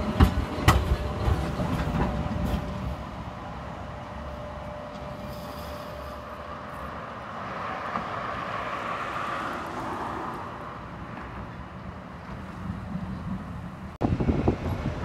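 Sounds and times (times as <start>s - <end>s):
tram motor whine: 0.0s - 8.4s
car passing by: 5.3s - 11.3s.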